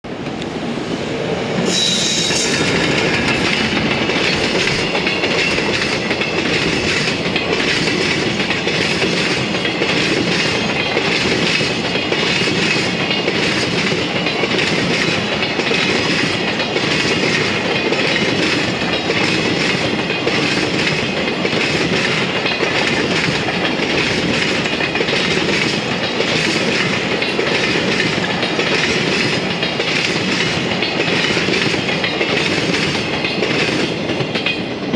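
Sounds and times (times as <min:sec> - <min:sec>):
continuous train rumble: 0:00.0 - 0:34.9
train wheels clattering over rail joints: 0:01.6 - 0:34.9.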